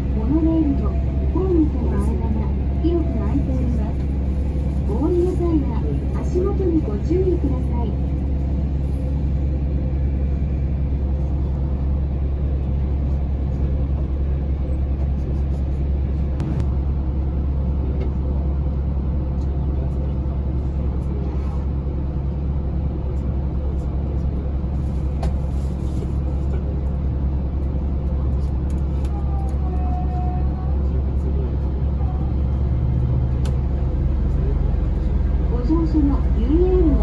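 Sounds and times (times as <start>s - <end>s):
monorail car hum and rumble: 0.0s - 37.0s.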